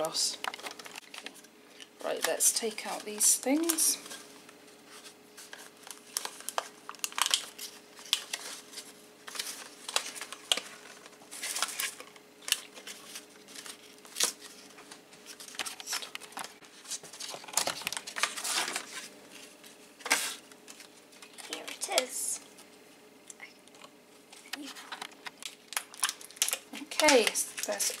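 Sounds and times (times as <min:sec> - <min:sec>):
cardboard and plastic crinkling: 0:00.0 - 0:22.8, 0:23.8 - 0:28.0.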